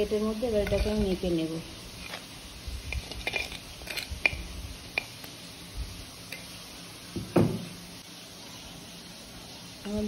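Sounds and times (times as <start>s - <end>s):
metal spoon scraping a pot: 0.4s - 1.4s, 2.0s - 5.3s.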